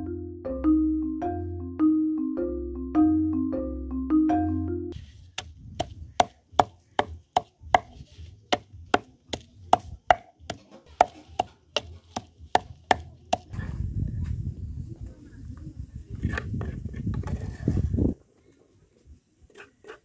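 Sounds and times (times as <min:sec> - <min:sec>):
background music: 0:00.0 - 0:05.0
pestle pounding in wooden mortar: 0:05.4 - 0:13.5.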